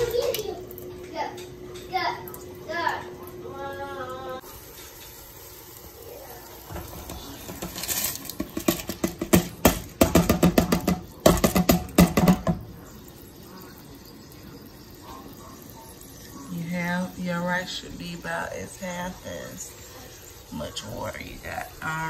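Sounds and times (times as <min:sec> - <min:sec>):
boiling water hissing: 0:00.0 - 0:22.0
rice pouring into saucepan: 0:04.4 - 0:21.7
plastic tapping against pot: 0:06.7 - 0:12.7.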